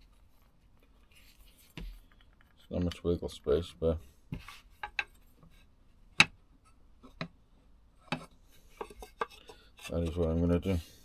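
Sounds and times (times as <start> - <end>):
wooden pieces clicking and knocking: 1.8 - 3.1.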